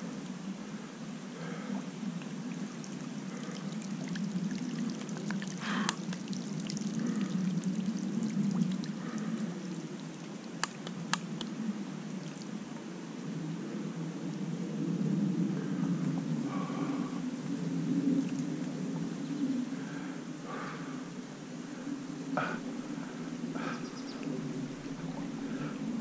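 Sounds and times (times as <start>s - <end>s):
stream flowing and gurgling: 0.0s - 26.0s
sharp ticks: 10.6s - 11.5s.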